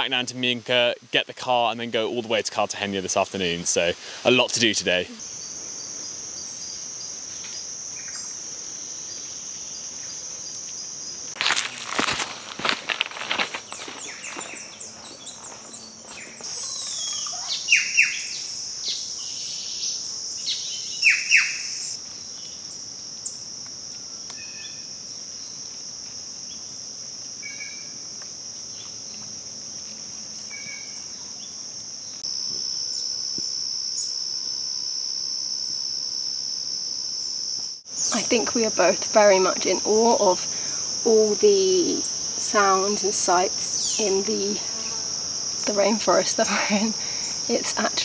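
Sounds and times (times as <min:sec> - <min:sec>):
cicadas droning: 0:00.0 - 0:48.0
birds chirping: 0:13.6 - 0:19.3, 0:20.4 - 0:22.0
sharp falling bird calls: 0:20.5 - 0:22.0.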